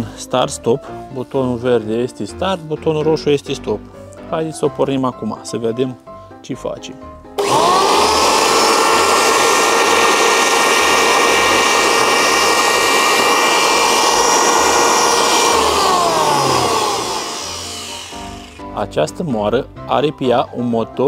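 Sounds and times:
electric grain mill motor whine: 7.4 - 18.8.

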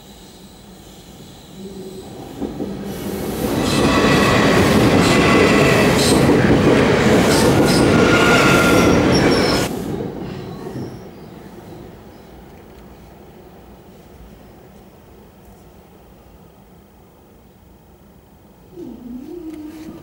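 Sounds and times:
train wheel-on-rail noise: 0.0 - 20.0
high squealing tones: 7.3 - 9.7.

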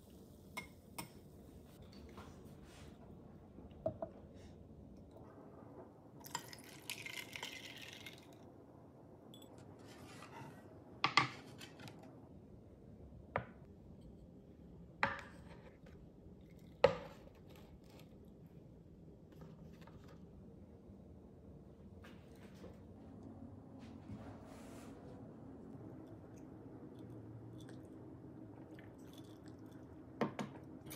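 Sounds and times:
drink pouring over ice: 6.2 - 8.4.

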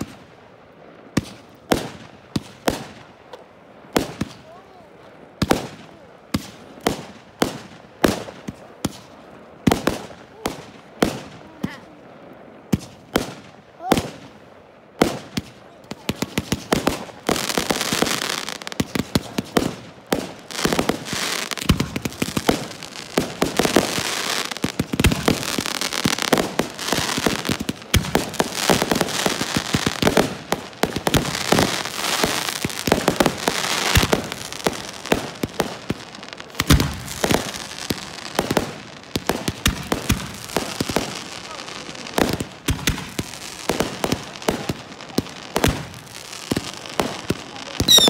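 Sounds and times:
fireworks crackle: 0.0 - 48.0.

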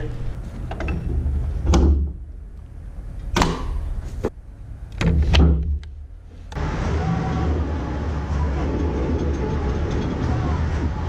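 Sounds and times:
metal clunks and knocks: 0.6 - 2.2.

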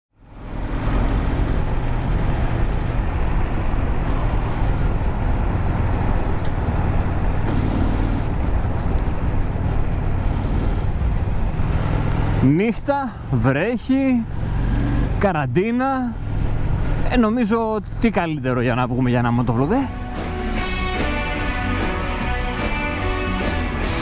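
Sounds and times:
wind and road noise: 0.1 - 24.0
motorcycle engine running: 0.2 - 12.4.

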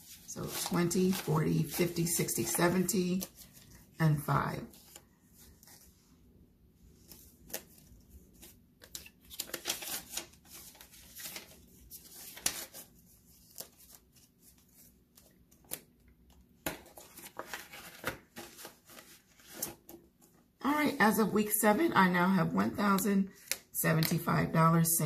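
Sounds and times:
banknotes rustling: 0.0 - 6.1, 6.9 - 20.3.

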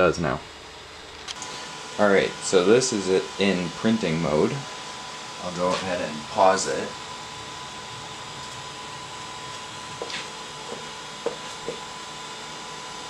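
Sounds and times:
faint steady whine: 0.0 - 13.0
printer fans running: 0.0 - 13.0
stepper motor chirps: 0.0 - 13.0.

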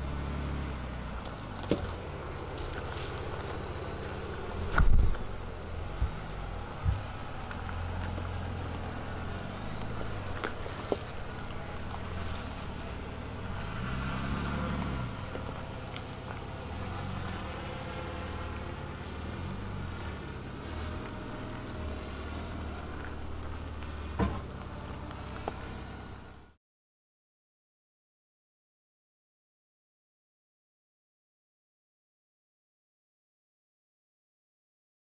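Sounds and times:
pickup engine running: 0.0 - 26.6
stones knocking against vehicle: 1.2 - 5.3, 5.9 - 12.6, 22.8 - 25.8.

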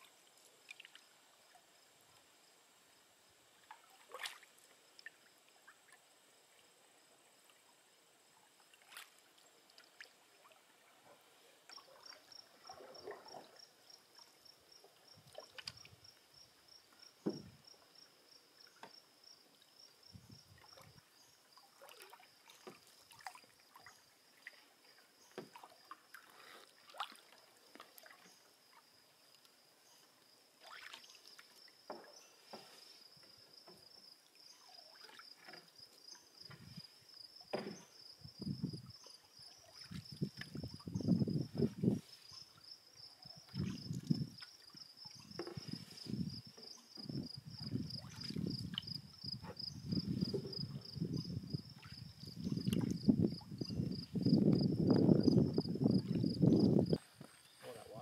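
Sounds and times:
small knocks on canoe: 17.2 - 17.6, 18.8 - 19.0, 22.6 - 22.9, 25.3 - 25.7, 31.8 - 32.7, 36.4 - 36.8, 37.4 - 38.0, 45.3 - 45.8, 48.3 - 50.7
soft paddle strokes: 20.6 - 37.0, 43.4 - 47.2.

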